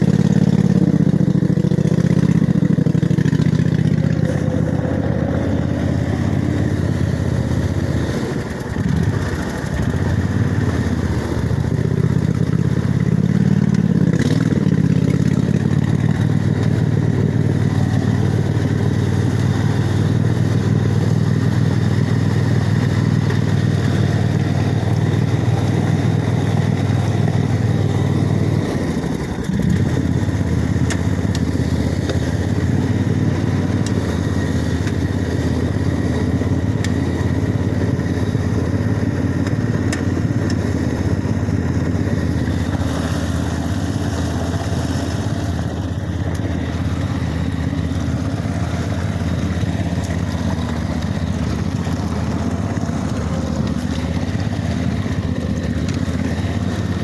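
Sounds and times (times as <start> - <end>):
lawn tractor engine running: 0.0 - 57.0.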